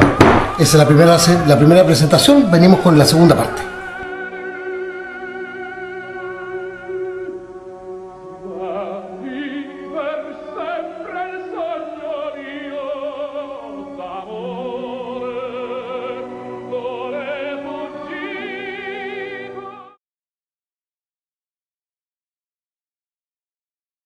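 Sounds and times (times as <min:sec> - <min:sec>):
orchestral accompaniment: 0:00.0 - 0:19.8
operatic voice singing: 0:00.1 - 0:07.4, 0:08.4 - 0:20.0.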